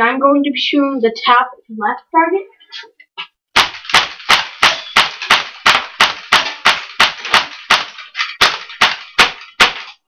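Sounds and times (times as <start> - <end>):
airsoft pistol shots: 3.6 - 10.0.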